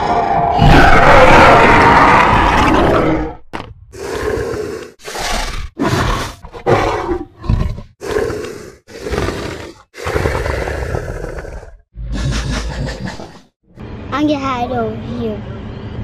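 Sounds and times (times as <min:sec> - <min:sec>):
dinosaur roars: 0:00.0 - 0:03.4, 0:04.0 - 0:12.7.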